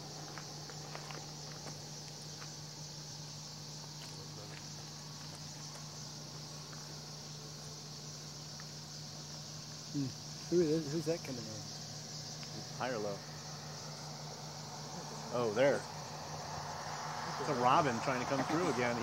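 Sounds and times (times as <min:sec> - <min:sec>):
high-pitched insect chorus: 0:00.0 - 0:19.0.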